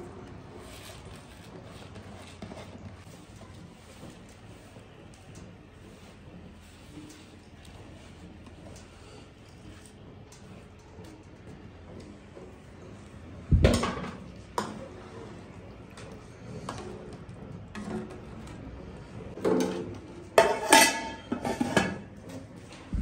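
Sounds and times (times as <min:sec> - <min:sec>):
ladle stirring rice in pot: 0:00.0 - 0:13.3, 0:14.2 - 0:22.9
metal lid clanking: 0:19.5 - 0:22.1.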